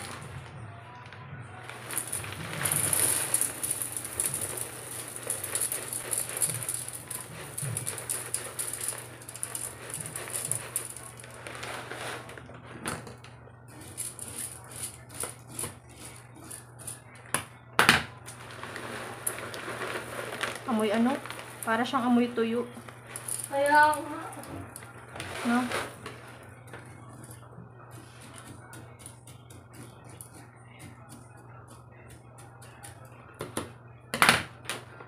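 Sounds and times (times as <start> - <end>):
plastic bag rustling: 0.0 - 0.5, 1.7 - 13.2, 18.3 - 27.4
kibble rattling into metal tin: 1.7 - 12.4, 13.8 - 17.0, 18.3 - 27.4.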